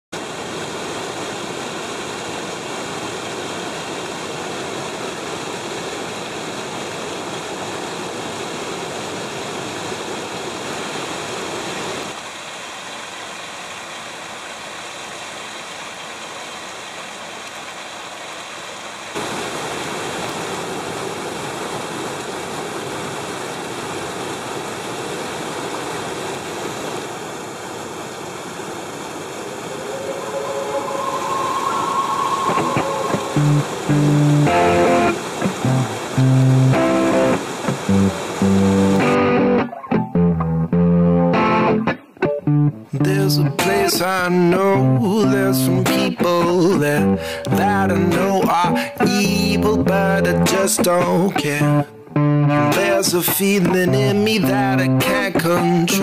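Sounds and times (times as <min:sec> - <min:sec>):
water rushing over weir: 0:00.2 - 0:40.3.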